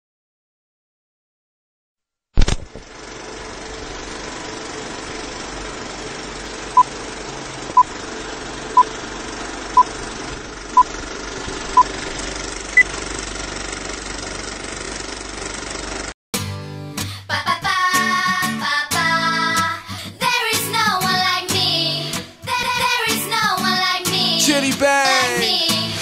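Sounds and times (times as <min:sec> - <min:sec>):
film projector whirr and rattle: 0:02.4 - 0:16.1.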